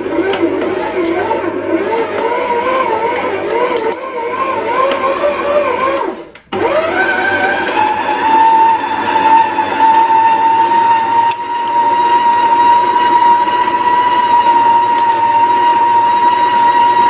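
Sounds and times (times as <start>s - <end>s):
stand mixer motor whining: 0.0s - 17.0s.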